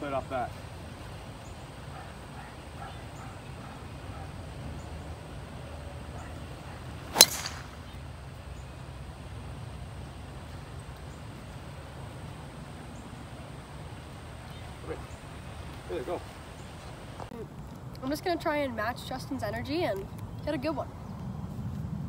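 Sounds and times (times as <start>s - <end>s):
golf club striking ball: 7.1s - 8.0s.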